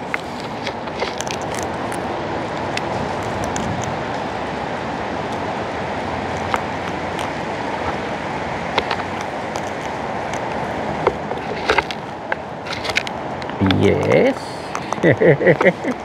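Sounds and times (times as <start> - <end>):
cockatoos cracking seed: 0.1 - 4.0.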